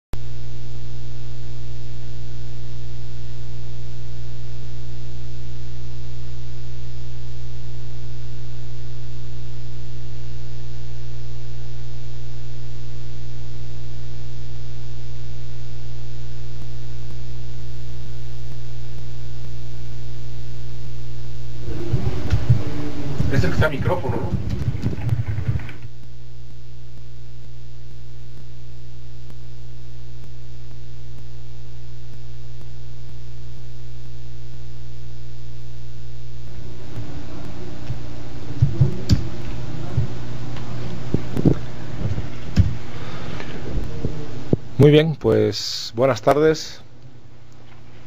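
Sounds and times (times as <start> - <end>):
electrical mains hum: 0.2 - 48.0.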